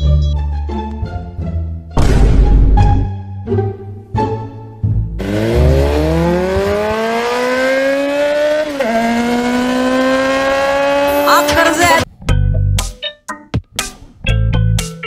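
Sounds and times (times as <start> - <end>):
vehicle engine revving: 5.2 - 11.2.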